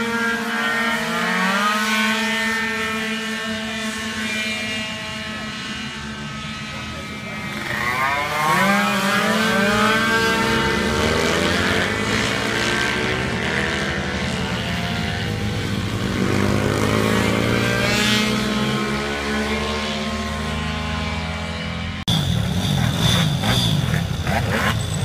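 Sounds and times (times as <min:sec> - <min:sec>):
racing scooter engines at high revs: 0:00.0 - 0:25.0.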